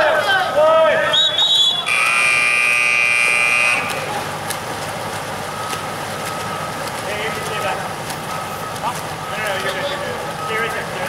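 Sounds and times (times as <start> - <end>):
pool background noise: 0.0 - 11.0
timing buzzer: 1.8 - 4.1.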